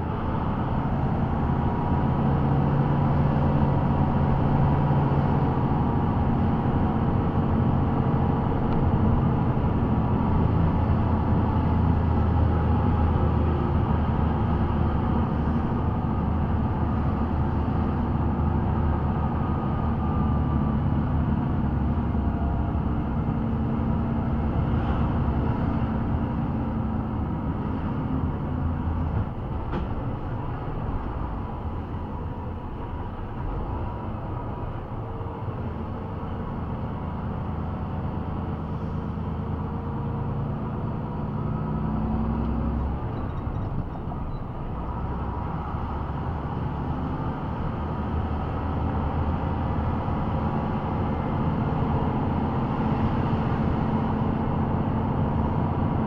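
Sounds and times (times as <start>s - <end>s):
heavy vehicle engine and road noise: 0.0s - 56.0s.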